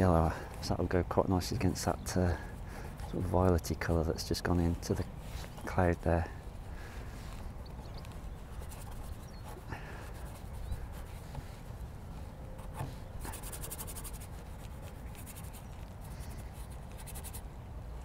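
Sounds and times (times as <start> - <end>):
paint brush scratching on panel: 8.0 - 11.8, 12.6 - 17.4.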